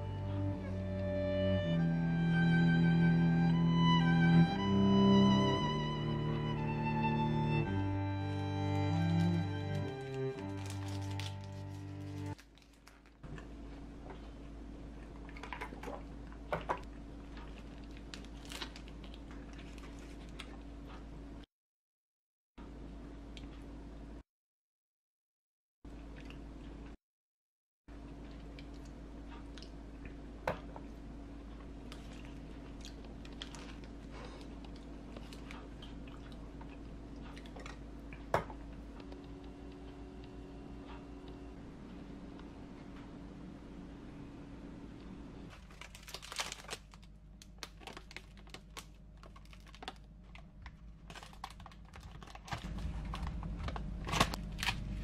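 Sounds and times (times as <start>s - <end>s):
faint steady hum: 0.0s - 21.5s, 27.9s - 55.0s
paper wrappers crinkling: 9.2s - 13.2s, 17.4s - 20.4s, 33.1s - 34.4s, 45.5s - 55.0s.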